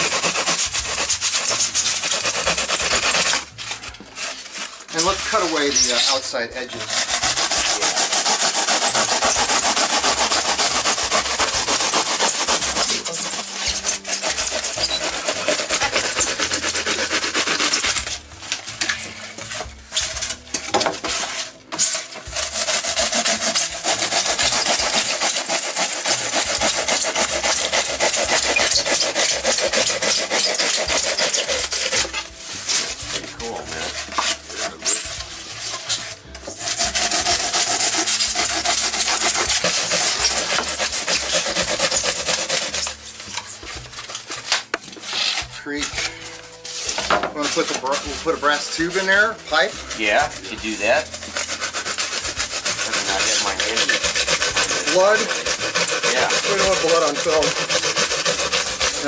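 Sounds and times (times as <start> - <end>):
saw cutting foam board: 0.0 - 59.0.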